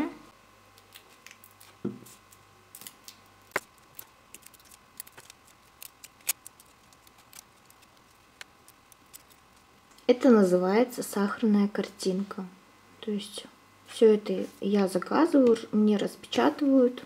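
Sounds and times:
small scissors snipping paper: 0:02.8 - 0:09.6.

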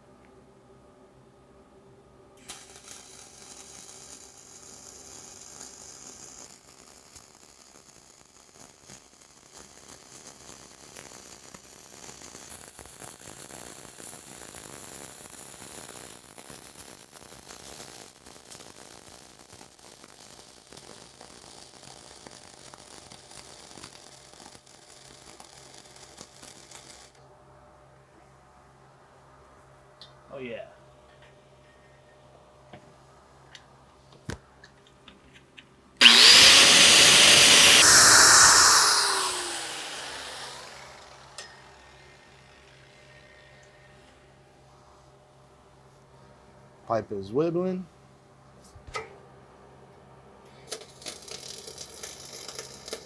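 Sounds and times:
welding arc crackling: 0:02.4 - 0:27.2, 0:36.0 - 0:44.1, 0:50.5 - 0:53.0.

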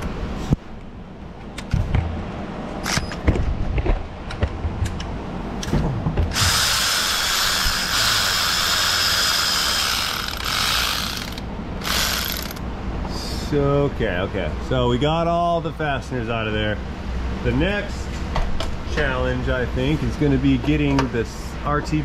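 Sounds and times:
power tool high whine: 0:06.3 - 0:12.6.

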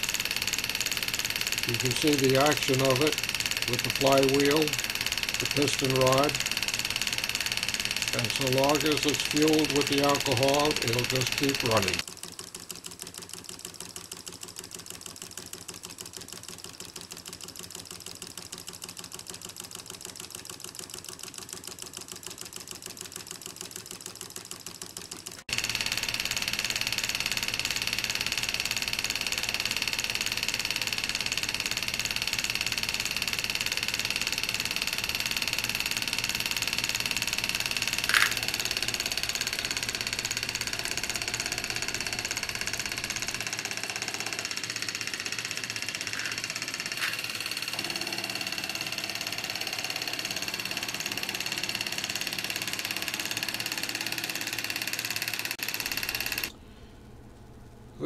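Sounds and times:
engine mechanical ticking: 0:00.0 - 0:12.1, 0:22.8 - 0:56.5.

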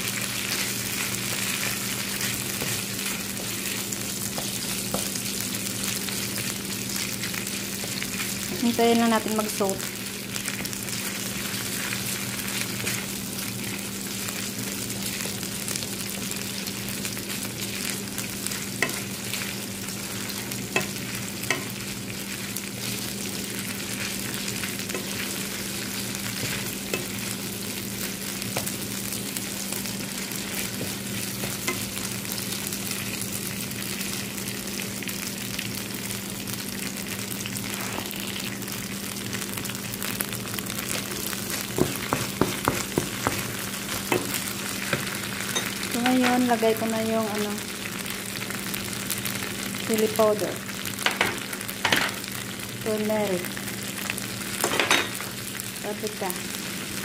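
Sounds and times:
paste sizzling in hot oil: 0:00.0 - 0:36.0
spatula tapping a pan: 0:04.3 - 0:05.2, 0:18.8 - 0:19.1, 0:20.7 - 0:21.8, 0:41.7 - 0:45.1.

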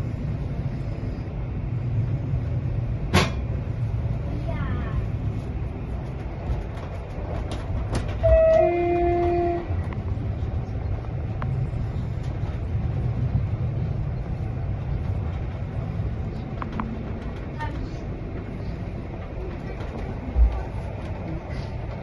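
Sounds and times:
train rumbling: 0:00.0 - 0:22.0
train horn: 0:08.2 - 0:09.8.

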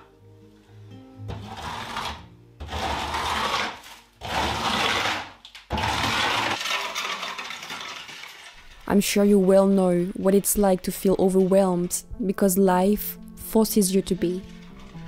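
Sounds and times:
hand tool scraping plaster wall: 0:01.3 - 0:11.9.

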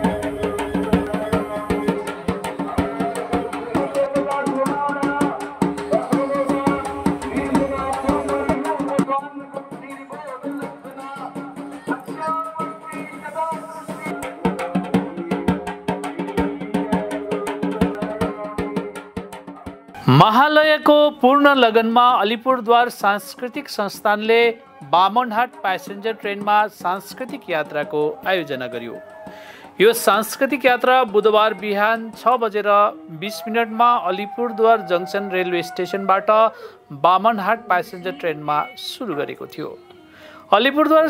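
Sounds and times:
fast dense drumming: 0:00.0 - 0:09.0.

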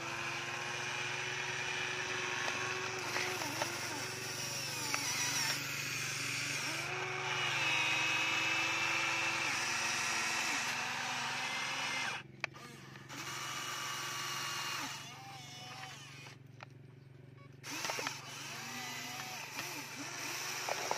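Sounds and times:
toy excavator motors whining: 0:00.0 - 0:20.9
sharp clicks: 0:17.7 - 0:20.9.

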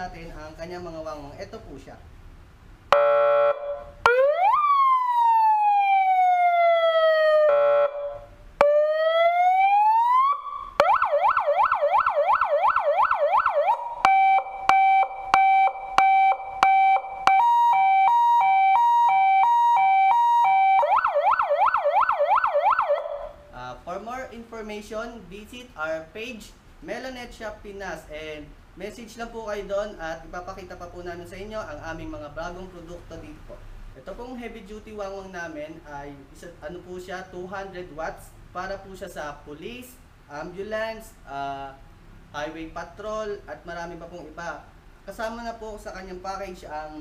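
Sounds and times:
electronic siren wailing and yelping: 0:02.9 - 0:23.5
siren horn blast: 0:02.9 - 0:23.5.

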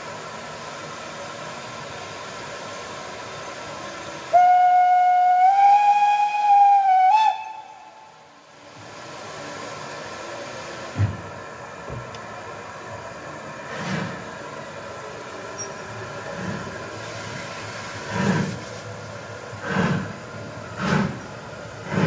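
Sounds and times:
hiss of escaping steam: 0:00.0 - 0:11.4, 0:13.4 - 0:22.0
steam whistle blast: 0:04.3 - 0:08.3.

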